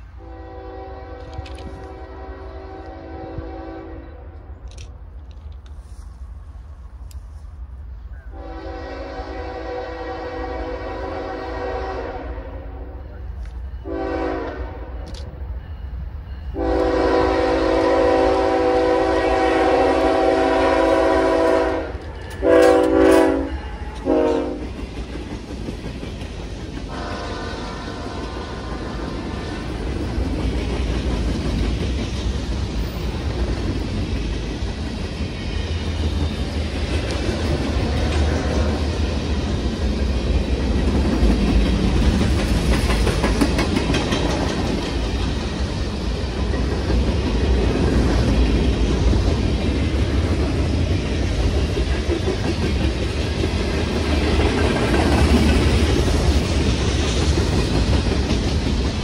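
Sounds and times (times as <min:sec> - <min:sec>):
freight train wheels rumbling: 0:00.0 - 0:59.0
locomotive air horn blasts: 0:00.2 - 0:04.4, 0:08.3 - 0:13.0, 0:13.8 - 0:15.1, 0:16.6 - 0:24.7, 0:26.9 - 0:28.4.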